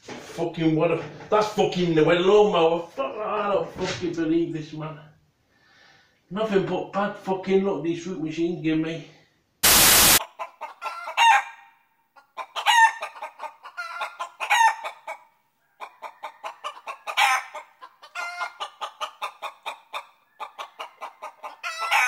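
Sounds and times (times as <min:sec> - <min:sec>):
chickens clucking: 0:10.2 - 0:11.5, 0:12.2 - 0:22.0
chickens squawking: 0:10.2 - 0:22.0.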